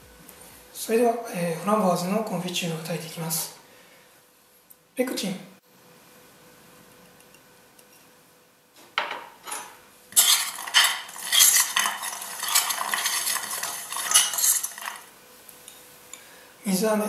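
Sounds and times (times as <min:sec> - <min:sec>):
metal spoon scraping saucepan: 0:09.5 - 0:15.1.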